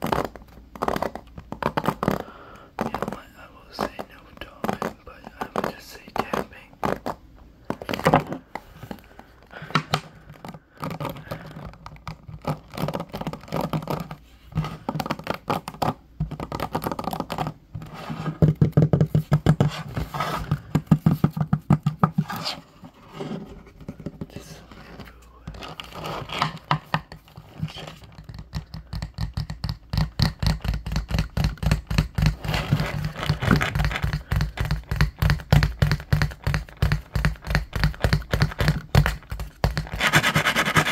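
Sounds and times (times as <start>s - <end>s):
fingers scratching hairbrush pins: 0.0s - 8.1s, 9.6s - 22.6s, 24.3s - 40.9s
fingers tapping hollow wood: 0.0s - 8.6s, 9.6s - 17.6s, 18.3s - 19.8s, 20.4s - 22.2s, 26.3s - 40.9s.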